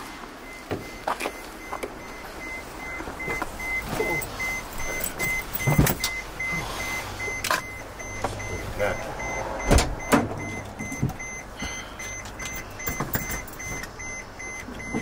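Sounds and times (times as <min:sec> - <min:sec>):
rapid high beeps: 0:00.4 - 0:15.0
knocks and rustling on seats: 0:03.0 - 0:06.6, 0:09.6 - 0:11.4, 0:12.4 - 0:14.0.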